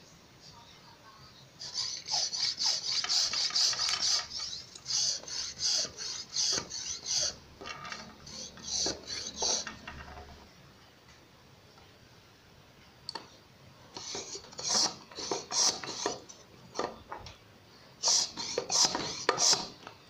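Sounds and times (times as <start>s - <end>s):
hand air pump parts scraping: 1.6s - 10.3s, 14.0s - 16.9s, 18.0s - 19.8s.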